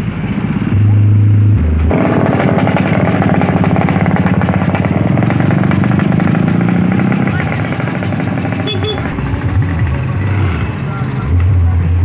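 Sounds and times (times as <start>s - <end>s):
scooter engines passing: 0.0s - 12.0s.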